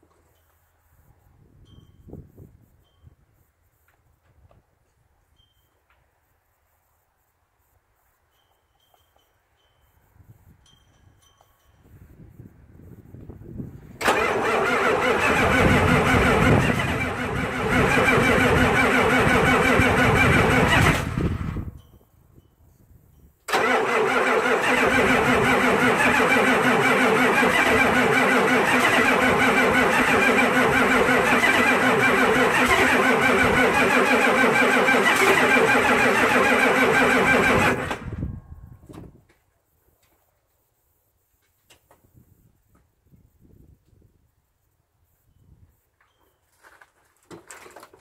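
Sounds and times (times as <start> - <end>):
truck engine cranking: 14.0 - 21.7, 23.5 - 38.2.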